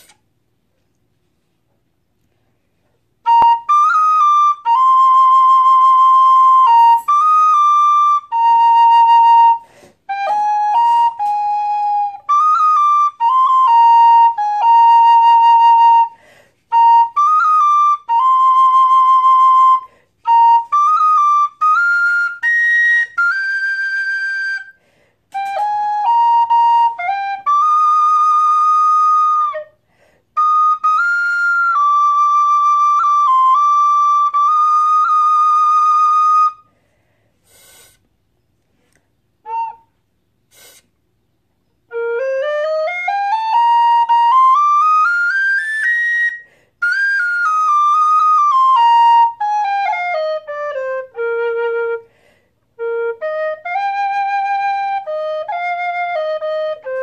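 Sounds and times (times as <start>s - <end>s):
tin whistle playing slow melody: 3.2s - 29.8s, 30.4s - 36.7s, 41.8s - 52.1s.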